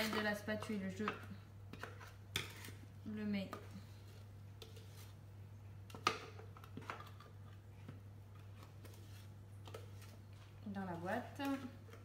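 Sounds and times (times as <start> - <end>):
spatula scraping metal bowl: 1.7 - 5.2.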